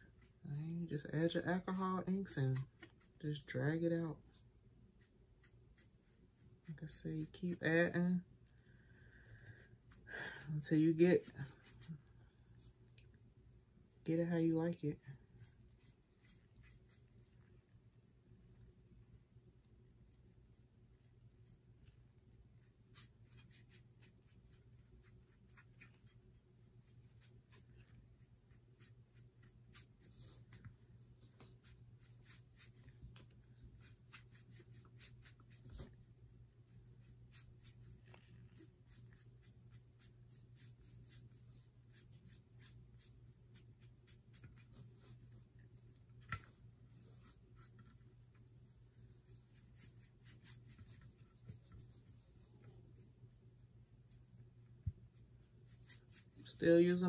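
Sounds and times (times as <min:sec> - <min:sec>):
sponge brush scratching on metal: 0:46.9 - 0:53.3, 0:54.2 - 0:57.0.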